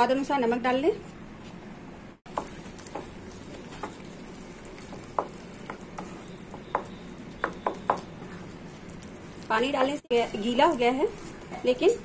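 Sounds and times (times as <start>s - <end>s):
food sizzling in pan: 2.3s - 12.0s
spatula scraping and squelching: 7.9s - 12.0s.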